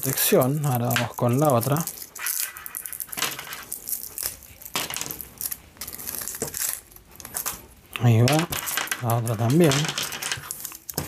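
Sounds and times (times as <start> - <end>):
foil crinkling as torn: 0.0 - 7.6.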